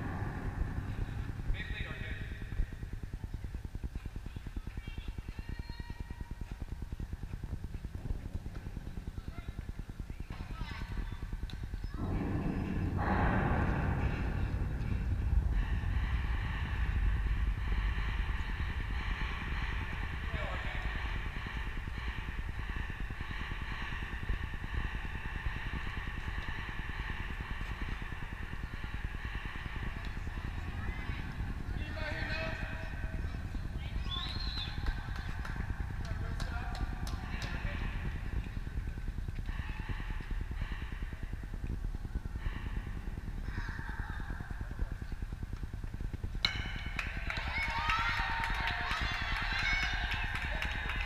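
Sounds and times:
wind rumble on microphone: 0.0s - 51.0s
distant voices calling out: 9.2s - 41.6s.

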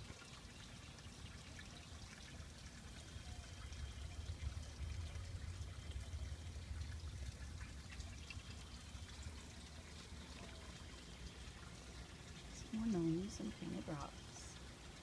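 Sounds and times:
low rumble: 3.6s - 10.2s.

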